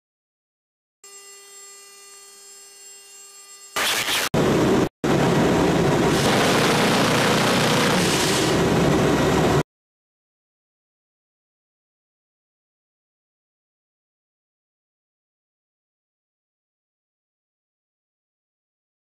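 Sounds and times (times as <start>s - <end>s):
rotary cannon firing: 3.8s - 4.5s, 6.1s - 8.7s.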